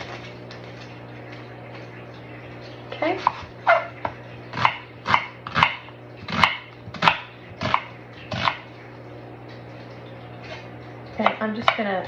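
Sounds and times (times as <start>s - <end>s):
knife slicing onion on board: 4.5s - 8.7s.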